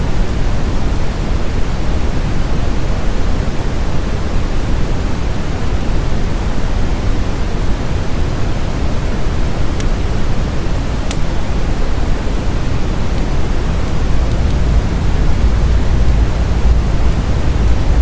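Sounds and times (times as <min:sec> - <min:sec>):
wood fire burning: 0:09.0 - 0:18.0.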